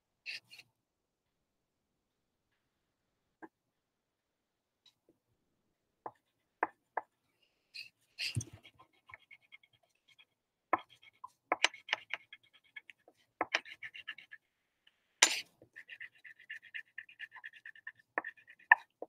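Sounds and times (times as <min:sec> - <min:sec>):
crayon scrapes: 0:07.8 - 0:14.4, 0:15.2 - 0:19.0
crayon rasping on paper: 0:07.8 - 0:14.5, 0:15.2 - 0:19.0.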